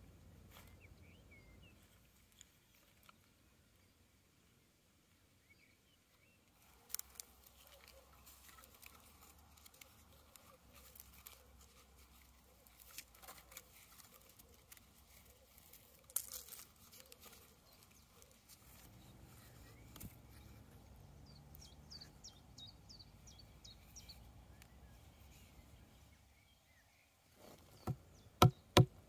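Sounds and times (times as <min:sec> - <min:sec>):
small clicks and scrapes handling: 0:01.8 - 0:03.4, 0:06.5 - 0:21.7.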